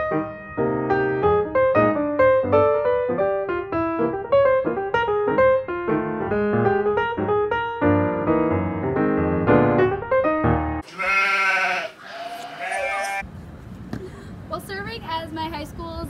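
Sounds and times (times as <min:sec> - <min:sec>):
solo piano music: 0:00.0 - 0:10.8
wavering bleat-like cry: 0:10.8 - 0:13.2.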